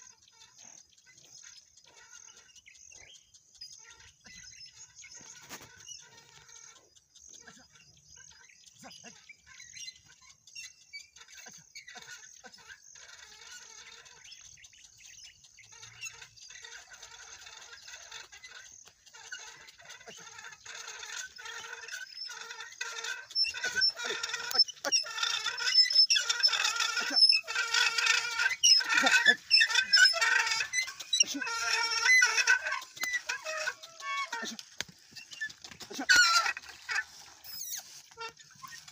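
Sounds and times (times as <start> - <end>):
plough squeaking: 15.7 - 38.9.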